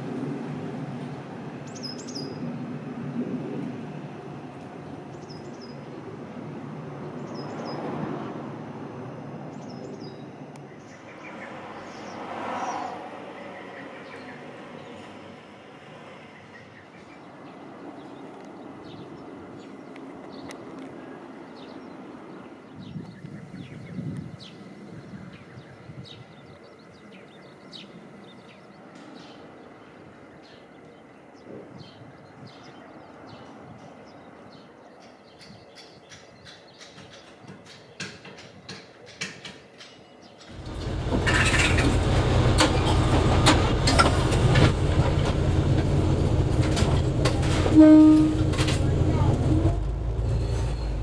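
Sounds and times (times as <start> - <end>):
background rumble: 40.5 - 51.0.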